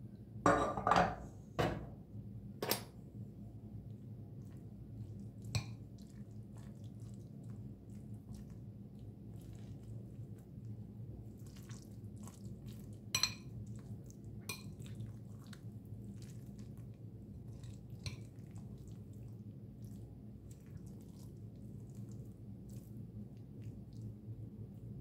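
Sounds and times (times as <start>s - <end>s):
steady low hum: 0.0s - 25.0s
spoon stirring soft mixture: 3.0s - 25.0s.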